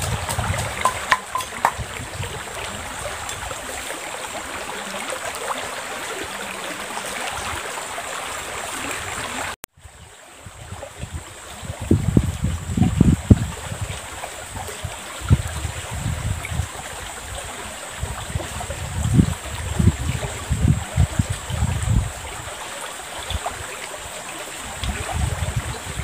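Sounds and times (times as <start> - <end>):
pestle pounding in a mortar: 0.0 - 1.9
river flowing: 0.0 - 12.4, 13.0 - 26.0.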